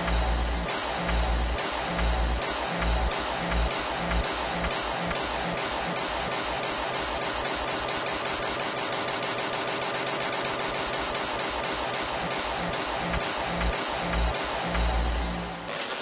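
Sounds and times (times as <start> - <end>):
deep bass: 0.0 - 4.2, 13.6 - 15.6
white-noise hiss bursts: 0.0 - 6.2, 11.4 - 16.0
fast electronic dance music: 0.0 - 16.0.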